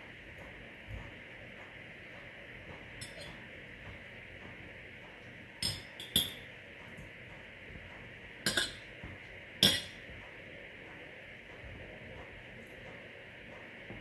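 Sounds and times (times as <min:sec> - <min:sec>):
fork clinking on ceramic plate: 0:03.0 - 0:03.4, 0:05.6 - 0:06.4, 0:08.5 - 0:08.8, 0:09.6 - 0:10.0.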